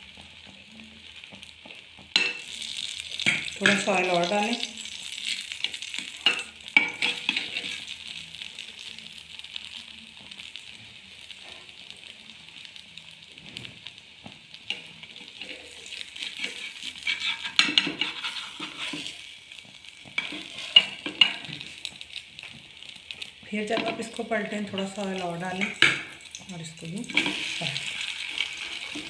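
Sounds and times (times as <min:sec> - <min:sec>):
toast sizzling in oil: 0:00.0 - 0:29.0
spatula scraping a pan: 0:05.0 - 0:08.0, 0:14.7 - 0:26.3, 0:27.1 - 0:29.0.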